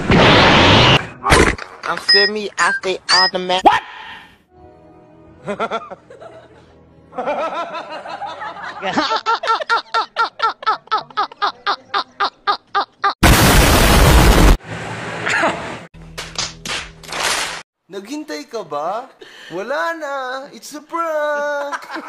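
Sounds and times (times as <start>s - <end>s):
loud explosion: 0.0s - 1.0s, 13.2s - 14.6s
man laughing hard: 5.4s - 6.6s, 7.2s - 13.2s.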